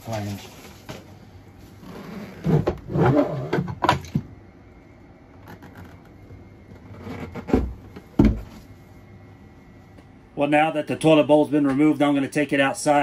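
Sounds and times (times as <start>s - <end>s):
plastic toilet rubbing and creaking: 1.7s - 4.1s, 5.3s - 8.5s.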